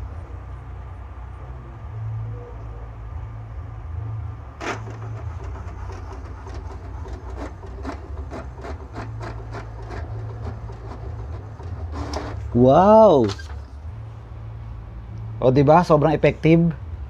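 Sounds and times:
printer motor hum: 4.4s - 14.3s.

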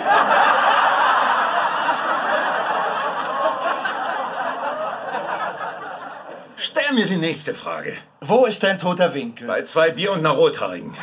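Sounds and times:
studio audience laughing: 0.0s - 6.7s.

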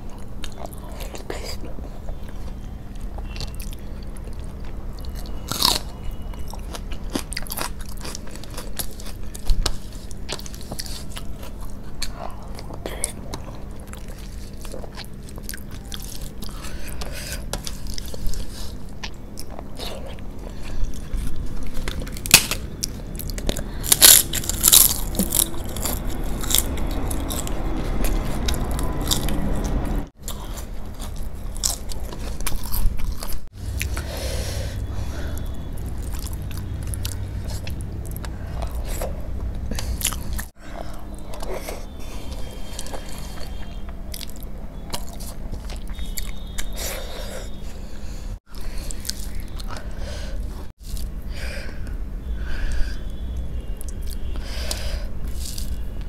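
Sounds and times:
chewing and mouth sounds: 0.0s - 34.2s, 35.2s - 47.6s, 48.4s - 51.1s
crisp crunching: 13.4s - 33.8s.

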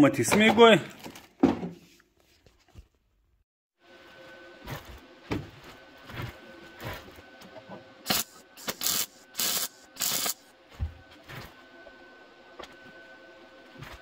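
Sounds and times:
welder arc bursts: 8.0s - 10.5s.

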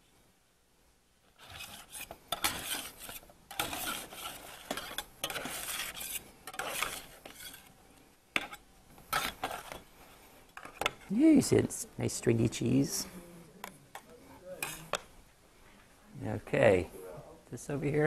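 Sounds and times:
metal utensil scraping cookware: 1.4s - 7.7s, 8.4s - 9.9s, 13.9s - 15.0s.

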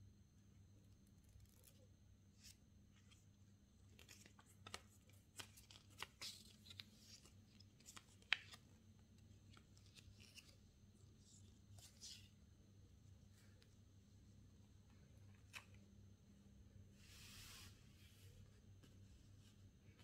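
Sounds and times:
paper cards rustling and clicking: 1.4s - 10.8s, 15.2s - 15.9s.

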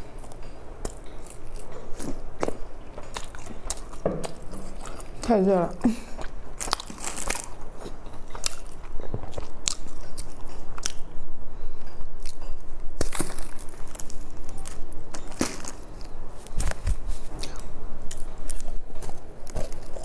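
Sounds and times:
crunchy snack being chewed: 6.2s - 11.1s, 12.2s - 20.0s.

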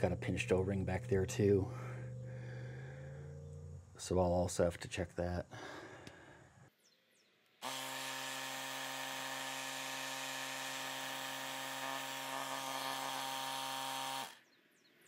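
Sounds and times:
tire inflator humming: 7.6s - 14.5s.

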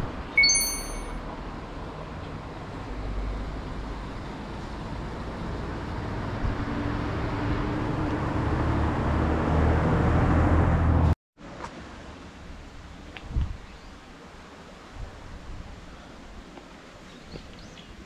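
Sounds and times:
faint outdoor background noise: 0.0s - 8.8s, 11.4s - 18.0s
vehicle passing close: 3.1s - 11.0s.

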